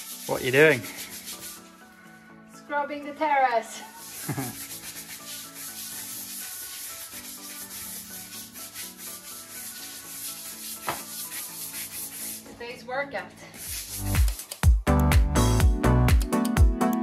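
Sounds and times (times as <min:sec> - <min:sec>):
scrubber rubbing wet tiles: 0:00.0 - 0:01.9, 0:03.8 - 0:12.6, 0:13.5 - 0:14.5.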